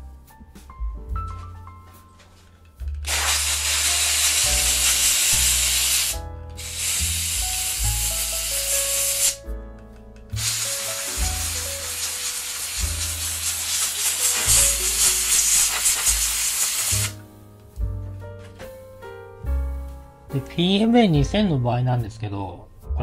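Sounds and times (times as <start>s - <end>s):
piano and bass music: 0.0s - 23.0s
aerosol spray hissing: 3.0s - 9.4s, 10.4s - 17.2s.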